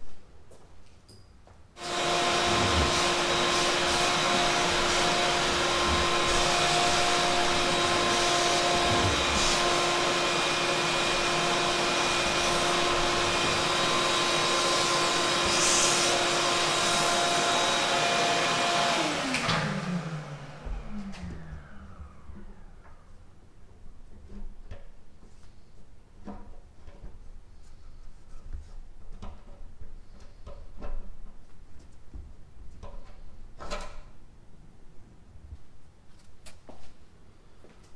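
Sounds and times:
vacuum motor winding down: 1.8 - 23.2
shop vacuum running: 1.8 - 23.8.

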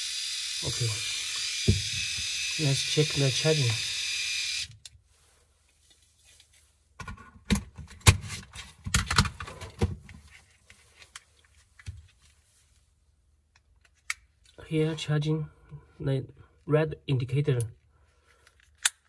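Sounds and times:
electric shaver buzzing: 0.0 - 4.7.

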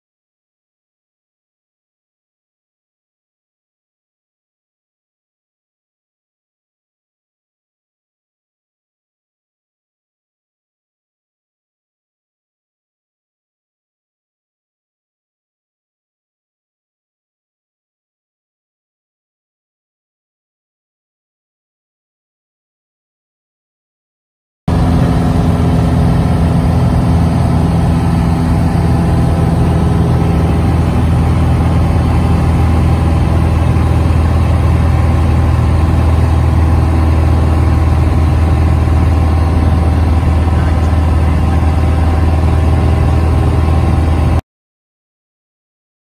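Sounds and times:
propeller airplane engine running: 24.7 - 44.4.

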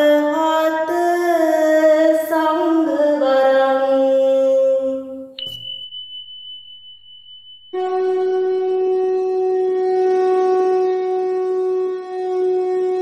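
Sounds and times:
woman chanting a melody: 0.0 - 5.4
faint steady high tone: 2.3 - 11.8
horn-like wind instrument note: 7.8 - 13.0.

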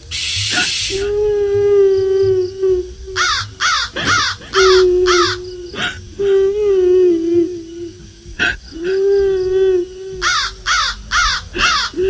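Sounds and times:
held wailing tone: 0.9 - 11.1
crow cawing: 3.2 - 5.9, 10.2 - 12.0.

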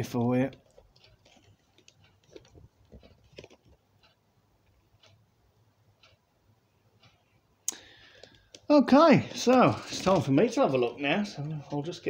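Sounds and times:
faint clicks: 6.0 - 6.2, 7.0 - 8.7.

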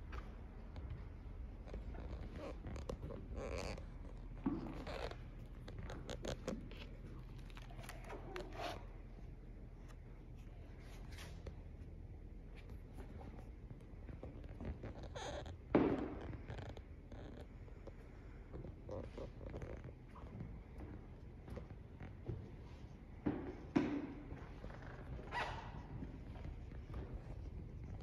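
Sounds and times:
stiff paper pages rustling: 6.1 - 8.9.

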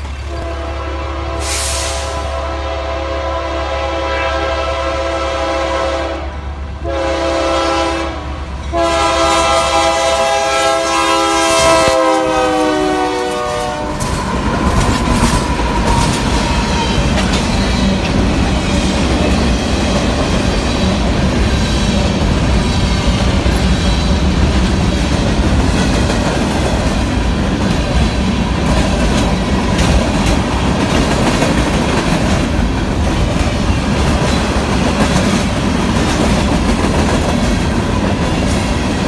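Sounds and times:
locomotive air horn blasts: 0.3 - 14.2.

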